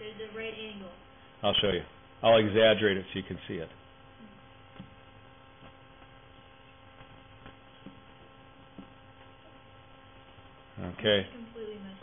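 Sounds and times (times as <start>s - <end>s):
faint electrical mains hum: 0.0s - 12.0s.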